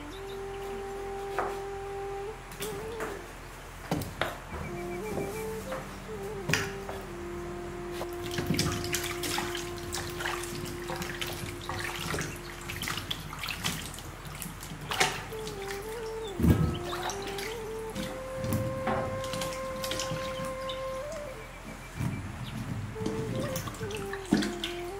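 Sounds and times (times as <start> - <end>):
held melodic tone: 0.0 - 3.8, 4.4 - 13.5, 15.1 - 24.9
water sloshing in a pot: 8.0 - 21.2, 22.0 - 24.9.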